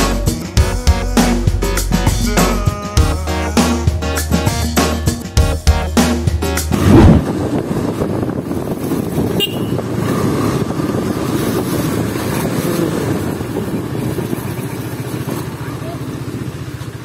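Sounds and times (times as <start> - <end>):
music: 0.0 - 6.8
motorcycle engine rumble: 0.0 - 17.0
road and wind noise: 0.0 - 17.0.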